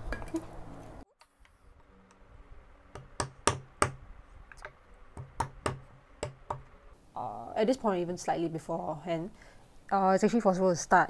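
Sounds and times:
chisel knocking into wood: 3.0s - 4.0s, 5.2s - 6.6s.

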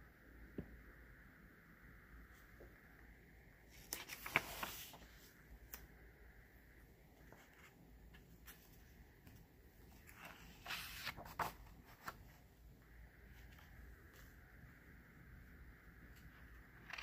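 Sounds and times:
paper rustles: 3.7s - 5.8s, 7.2s - 12.5s, 16.1s - 17.0s
pages turning: 3.7s - 5.9s, 7.2s - 12.6s, 16.1s - 17.0s.

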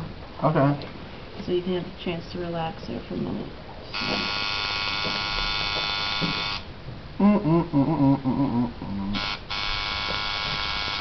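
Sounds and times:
pitched stepping tones: 3.9s - 6.7s, 9.2s - 11.0s
tattoo machine buzzing: 3.9s - 6.7s, 9.2s - 11.0s.

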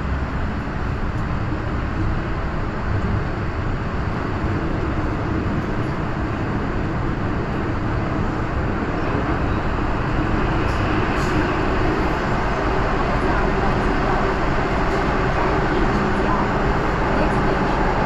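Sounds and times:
train motor hum: 0.0s - 18.0s
train wheels rumbling on rail: 0.0s - 18.0s.

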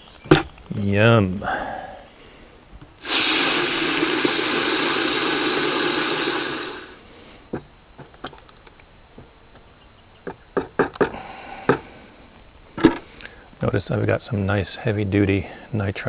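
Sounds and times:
hose spraying water into bucket: 3.0s - 7.0s.

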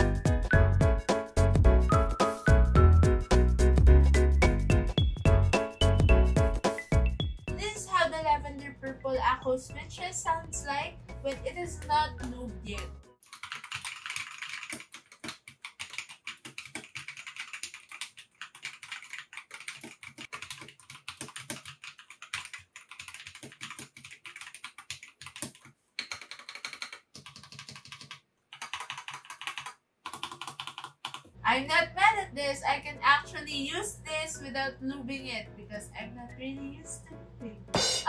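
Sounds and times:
mechanical keyboard typing: 12.2s - 31.3s.

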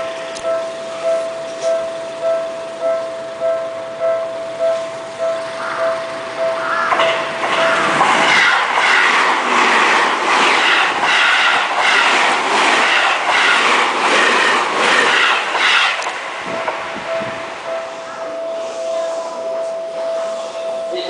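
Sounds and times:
train passing: 0.0s - 21.0s.

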